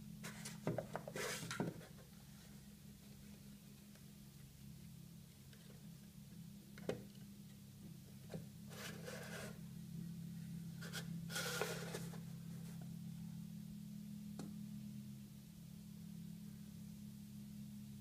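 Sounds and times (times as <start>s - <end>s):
plastic toy rubbing and scraping: 8.7s - 9.6s, 10.8s - 12.2s.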